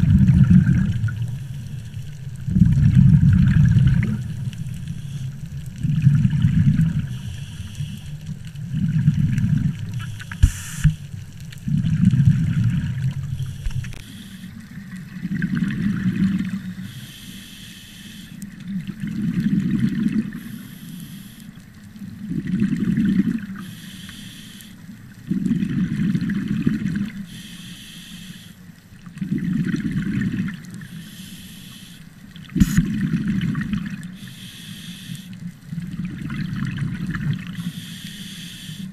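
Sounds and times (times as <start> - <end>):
exhale bubbling underwater: 0.0 - 17.0, 18.5 - 20.6, 22.0 - 23.8, 25.1 - 27.3, 29.1 - 31.2, 32.3 - 34.6, 35.5 - 38.9
regulator hiss on inhale: 1.3 - 2.2, 4.2 - 5.5, 7.0 - 8.3, 9.9 - 11.2, 13.2 - 14.7, 16.7 - 18.6, 20.3 - 21.8, 23.6 - 25.0, 27.2 - 28.8, 30.7 - 33.0, 34.1 - 35.6, 37.4 - 38.9.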